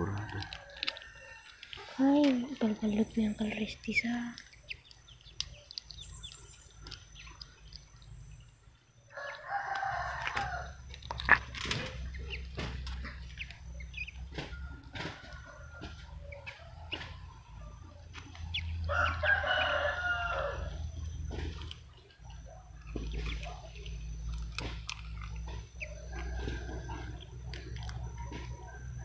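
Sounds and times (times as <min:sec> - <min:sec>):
rooster crowing: 0:00.0 - 0:02.0, 0:09.1 - 0:10.9, 0:14.4 - 0:18.0, 0:18.6 - 0:21.0, 0:24.9 - 0:29.0
eggshell crackling: 0:00.0 - 0:15.5, 0:18.0 - 0:29.0.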